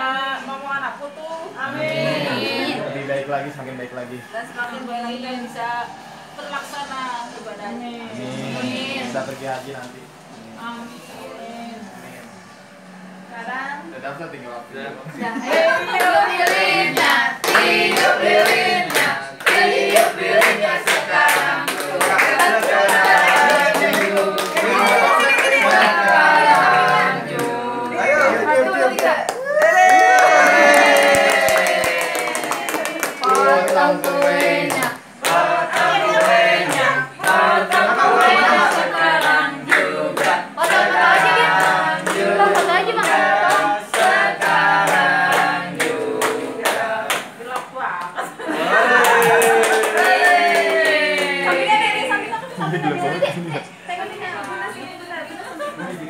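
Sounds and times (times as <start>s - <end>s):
group singing birthday song: 0.0s - 56.0s
people clapping in time: 15.9s - 27.5s, 28.9s - 48.1s, 48.7s - 51.7s.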